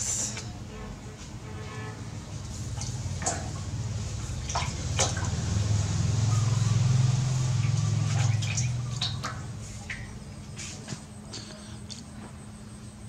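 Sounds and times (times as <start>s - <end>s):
low droning hum: 0.0s - 13.0s
water splashing in a metal basin: 2.3s - 10.8s.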